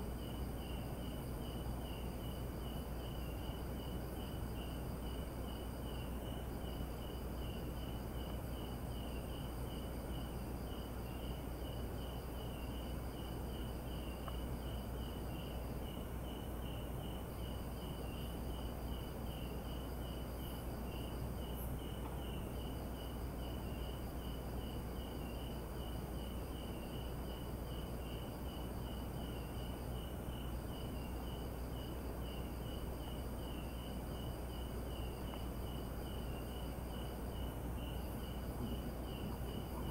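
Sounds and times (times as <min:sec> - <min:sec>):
cricket chirping: 0:00.0 - 0:39.9
high insect trill: 0:00.0 - 0:39.9
low steady hum: 0:00.0 - 0:39.9.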